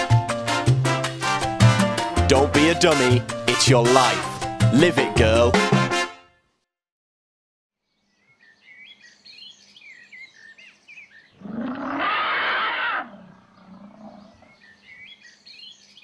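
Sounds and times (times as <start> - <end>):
birds chirping: 7.8 - 16.0
elephant trumpeting: 11.4 - 14.6.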